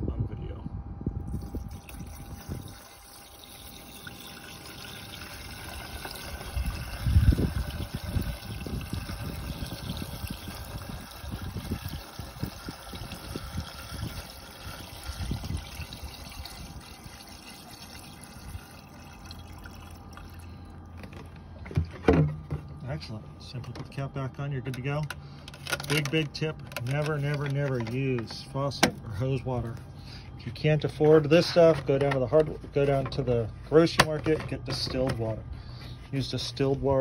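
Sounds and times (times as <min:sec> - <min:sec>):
fluid pouring from a jug: 0:01.2 - 0:21.1.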